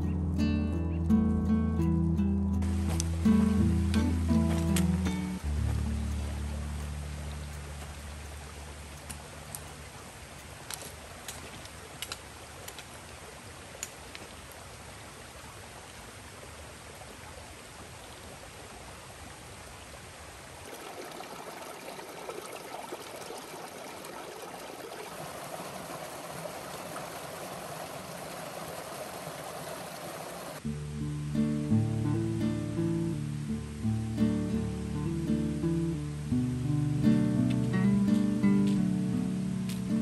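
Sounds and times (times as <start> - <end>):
creek water rushing over rocks: 2.6 - 30.7.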